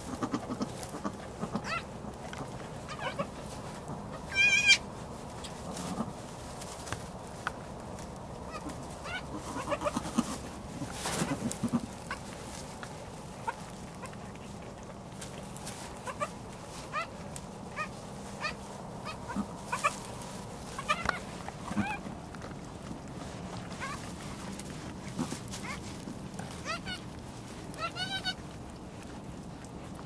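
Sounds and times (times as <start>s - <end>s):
goat kids bleating: 0.0s - 6.2s, 8.4s - 12.6s, 15.7s - 22.2s, 23.6s - 24.2s, 25.0s - 28.8s
rustling in straw: 0.0s - 30.0s.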